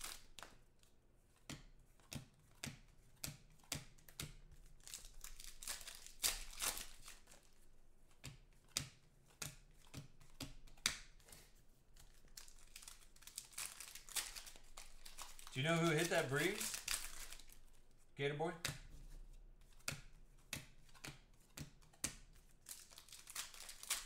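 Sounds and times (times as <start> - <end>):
foil wrapper crinkling: 0.0 - 0.4, 4.8 - 7.5, 12.1 - 17.8, 22.6 - 24.0
cards clicking and snapping: 0.0 - 17.8, 18.6 - 24.0.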